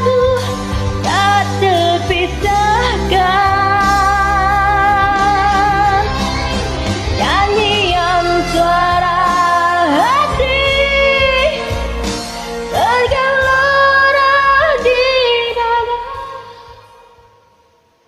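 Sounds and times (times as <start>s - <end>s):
woman singing with vibrato: 0.0s - 17.3s
karaoke backing track: 0.0s - 17.6s.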